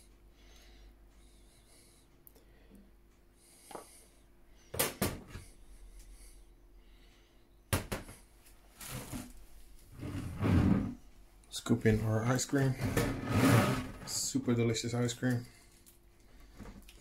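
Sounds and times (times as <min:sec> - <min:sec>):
short scrape on worktop: 0:12.8 - 0:14.1.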